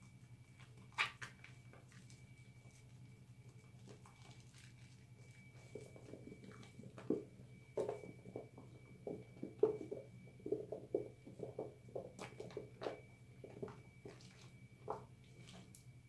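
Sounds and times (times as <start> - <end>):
soapy hands squishing: 3.5 - 7.0.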